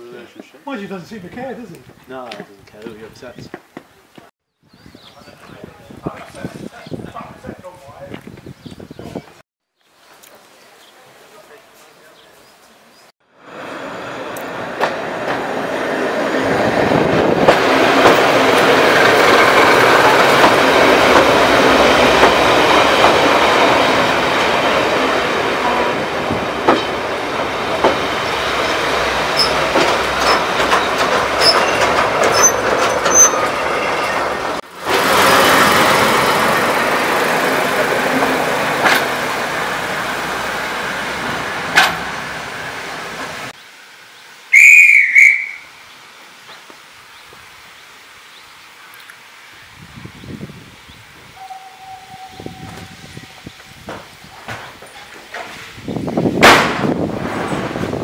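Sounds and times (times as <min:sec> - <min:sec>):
train carriage rumbling on track: 0:13.4 - 0:43.6, 0:49.7 - 0:58.0
shrill warbling whistle blast: 0:44.5 - 0:45.7.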